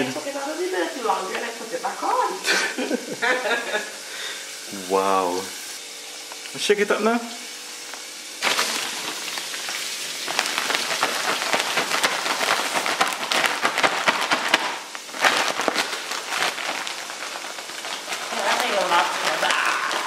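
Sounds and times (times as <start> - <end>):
chicken shaken in plastic bag: 8.4 - 20.0.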